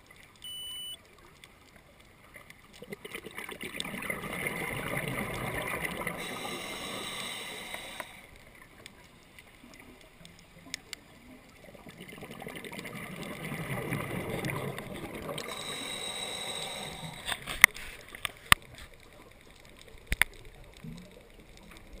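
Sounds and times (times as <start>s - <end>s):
exhalation bubbling from regulator: 2.8s - 8.2s, 11.8s - 17.4s
quiet inhale: 6.1s - 8.4s, 15.4s - 18.1s.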